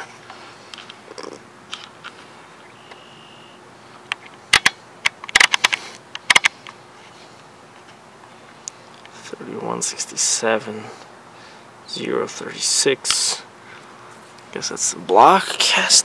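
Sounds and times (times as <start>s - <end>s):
camera handling clicks and knocks: 4.1s - 6.8s.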